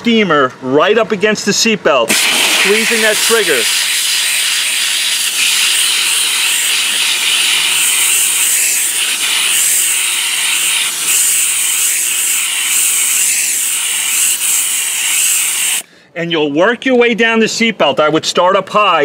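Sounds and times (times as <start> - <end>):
steam cleaner hissing: 2.1 - 15.8.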